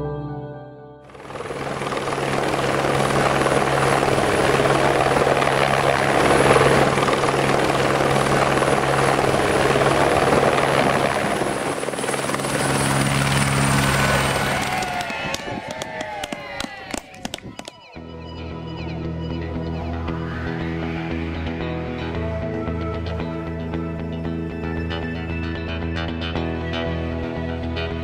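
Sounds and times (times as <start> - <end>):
helicopter rotors running: 1.1 - 18.0
high helicopter whine: 1.1 - 28.0.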